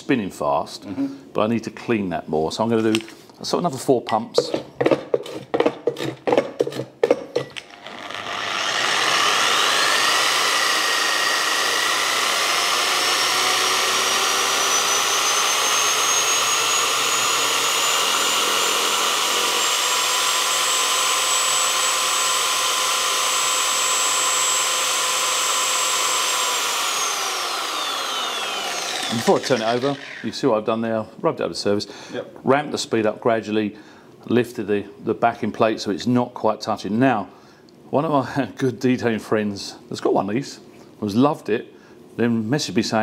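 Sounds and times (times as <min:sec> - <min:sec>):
electric polisher whine: 0:07.6 - 0:30.3.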